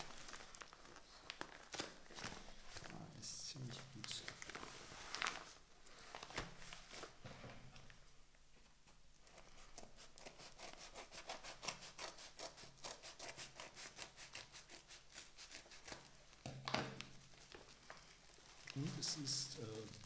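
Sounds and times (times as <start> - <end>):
paper envelope rustling: 0.0 - 7.2, 17.1 - 20.0.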